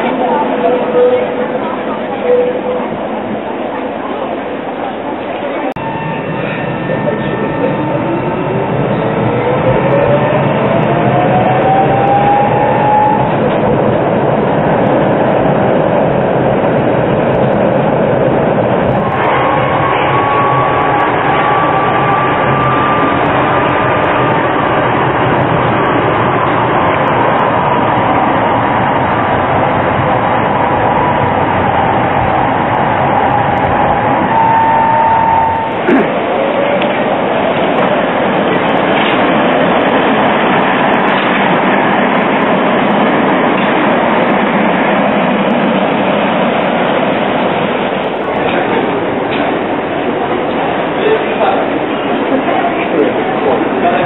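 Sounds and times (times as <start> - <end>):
tram rolling on rails: 0.0 - 54.0
faint high whine: 5.8 - 9.4.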